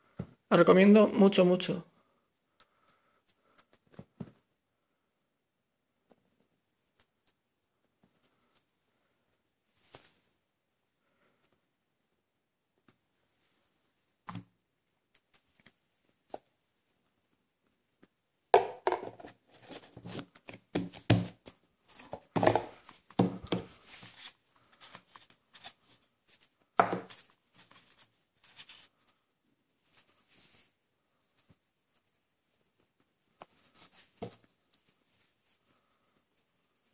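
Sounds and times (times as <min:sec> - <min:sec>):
cardboard knocks: 0:18.6 - 0:19.2.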